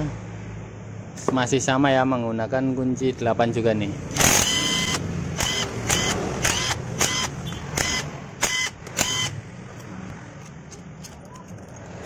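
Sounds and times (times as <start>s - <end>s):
cordless driver whining: 4.1s - 9.4s.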